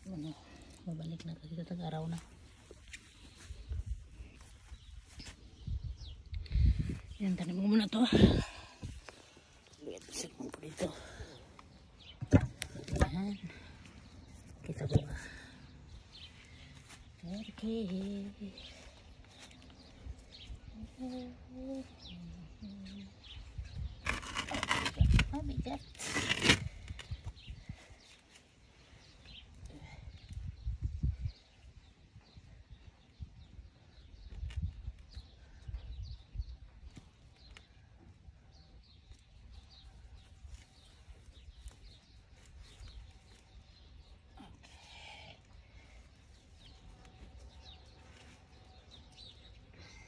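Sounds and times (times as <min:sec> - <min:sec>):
small birds chirping: 0:00.0 - 0:50.0.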